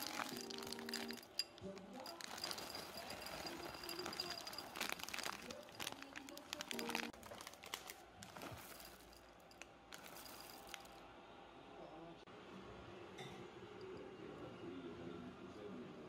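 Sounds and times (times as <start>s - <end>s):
chocolate chips clattering into bowl: 0.0s - 11.0s.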